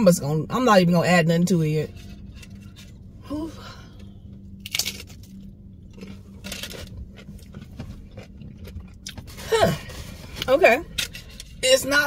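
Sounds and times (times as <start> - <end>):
biting into a crunchy taco: 4.5 - 9.5.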